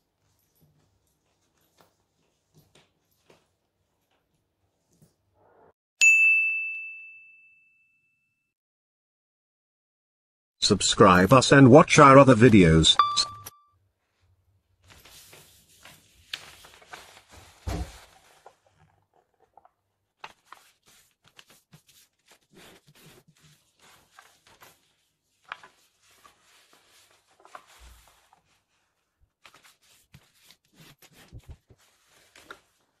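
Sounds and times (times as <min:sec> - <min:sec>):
paper rustling and creasing: 0:14.8 - 0:33.0.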